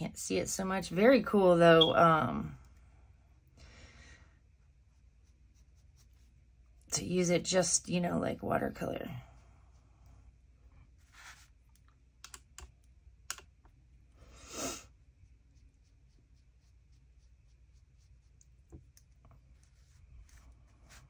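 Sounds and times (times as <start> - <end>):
brush swishing on paper: 4.5 - 6.8, 9.2 - 11.6, 14.6 - 21.0.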